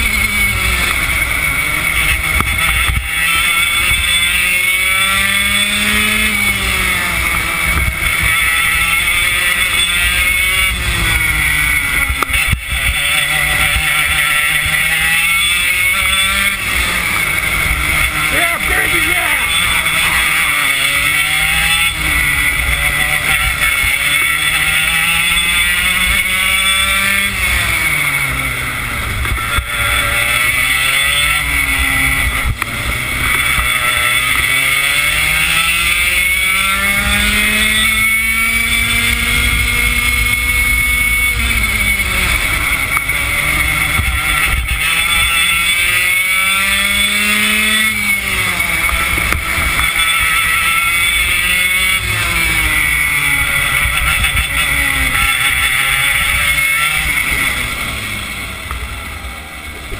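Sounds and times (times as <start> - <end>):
kart engine racing: 0.0 - 59.9.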